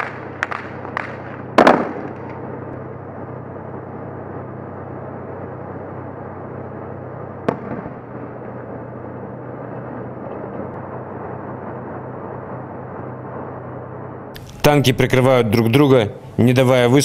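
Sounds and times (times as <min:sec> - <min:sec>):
sharp bang: 0:00.0 - 0:02.4, 0:07.4 - 0:08.1
tank diesel engine droning: 0:00.0 - 0:17.0.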